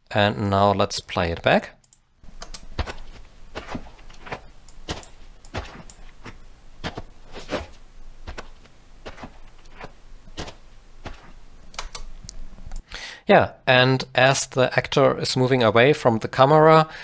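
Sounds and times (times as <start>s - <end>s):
boot footsteps on rocky dirt: 2.7s - 11.5s.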